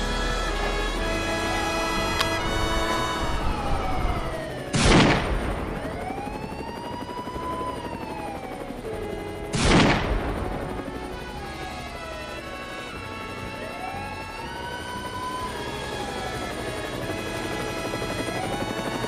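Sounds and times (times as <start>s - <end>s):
police siren wailing: 0.0s - 19.0s
rifle shots with echo: 4.7s - 6.0s, 9.5s - 10.8s.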